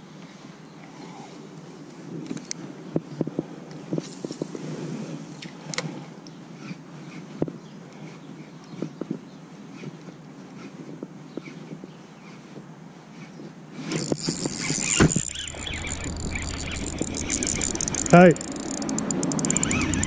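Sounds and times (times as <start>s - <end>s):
faint reel clicks: 13.9s - 20.0s.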